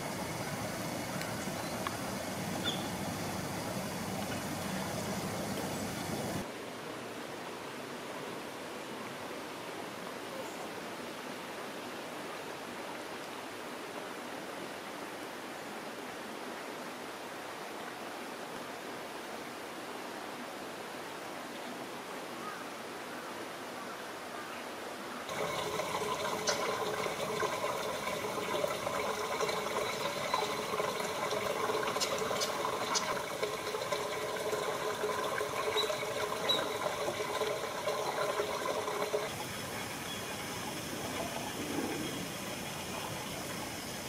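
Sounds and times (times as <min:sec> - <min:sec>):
water running and trickling: 0:00.0 - 0:06.5, 0:25.3 - 0:44.0
steady outdoor hiss: 0:00.0 - 0:44.0.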